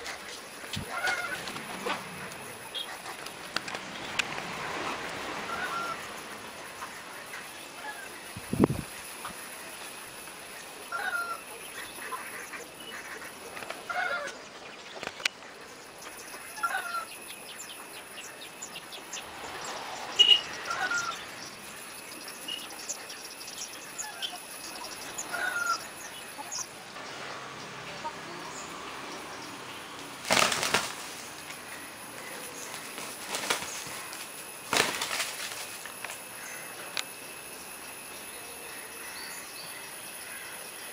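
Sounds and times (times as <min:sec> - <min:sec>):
roosters clucking: 0:00.0 - 0:40.9
wing-flapping: 0:00.7 - 0:05.0, 0:30.2 - 0:31.6, 0:32.6 - 0:36.2.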